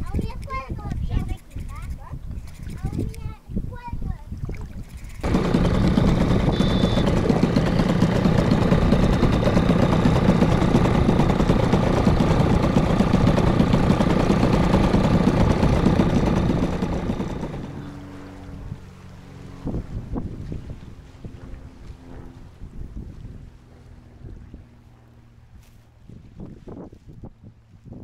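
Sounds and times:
outboard motor running: 4.5 - 26.4.

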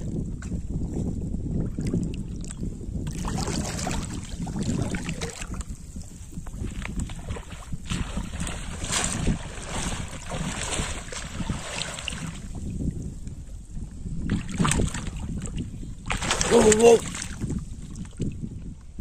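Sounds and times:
wind rumbling on microphone: 0.0 - 19.0
pond water splashing: 3.1 - 5.6, 6.8 - 12.5, 16.1 - 17.5.

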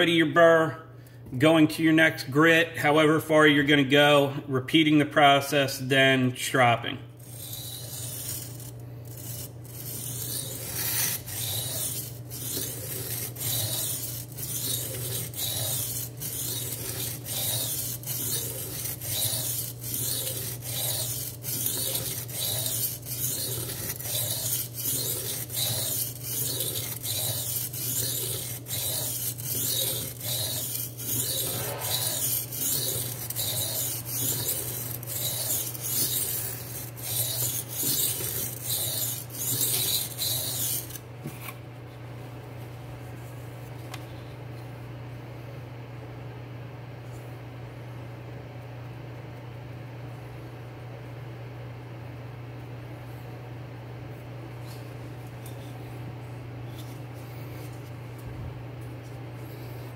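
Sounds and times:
knife grinding on sharpening stone: 7.2 - 41.5.

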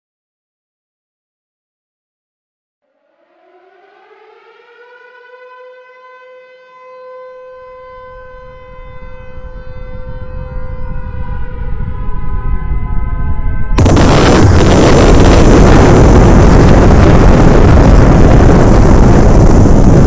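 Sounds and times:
siren wailing: 2.8 - 20.0
low rumble: 10.0 - 20.0.

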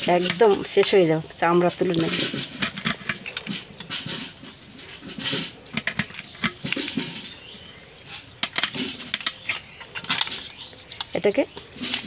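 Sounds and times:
crab shells cracking: 2.2 - 4.4, 5.5 - 7.6, 8.2 - 12.0.

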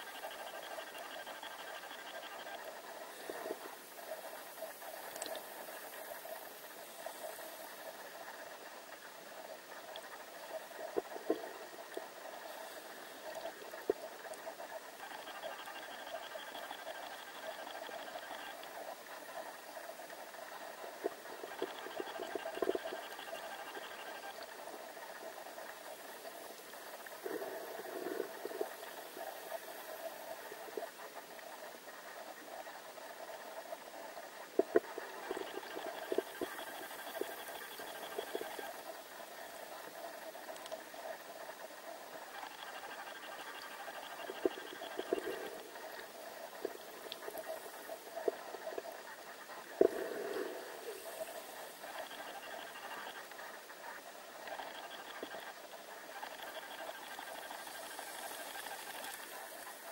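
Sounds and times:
faint hum: 0.0 - 59.9
muffled underwater hiss: 0.0 - 59.9
faint clicks: 0.2 - 6.4, 7.1 - 59.9.

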